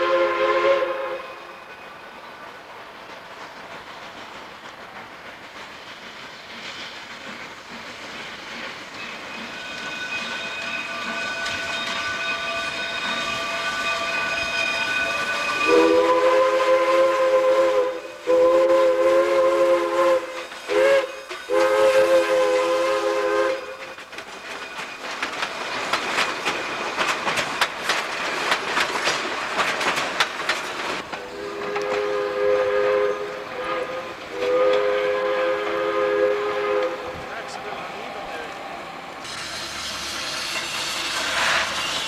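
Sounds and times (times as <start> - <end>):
steam locomotive whistle: 0.0 - 1.7, 9.4 - 24.0, 31.1 - 37.8, 39.2 - 42.0
train wheels clattering on rails: 0.0 - 42.0.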